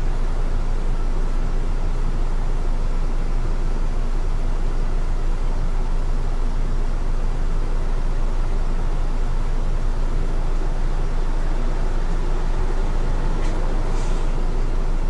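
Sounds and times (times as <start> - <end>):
bus engine idling: 0.0 - 15.0.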